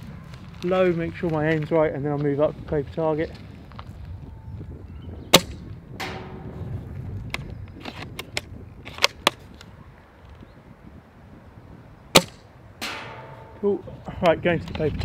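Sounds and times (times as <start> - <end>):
sharp airsoft rifle shot: 5.3 - 6.6, 12.2 - 13.6.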